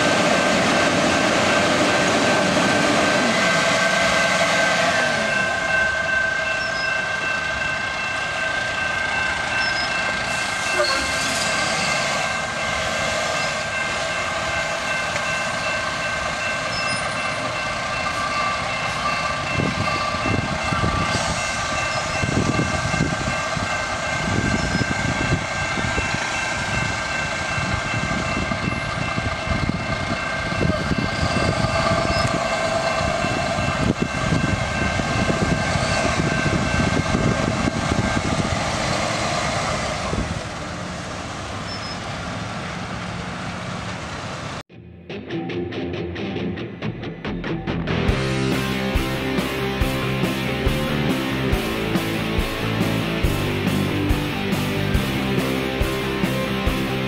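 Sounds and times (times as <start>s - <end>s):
crossing warning bell ringing: 0.0s - 38.3s
diesel truck engine rumble: 48.1s - 57.0s.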